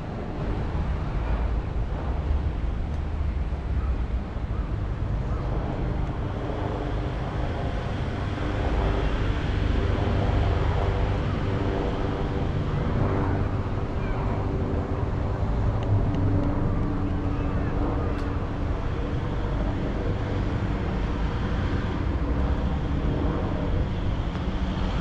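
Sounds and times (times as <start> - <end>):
street traffic rumble: 0.0 - 25.0
wind buffeting on microphone: 0.0 - 25.0.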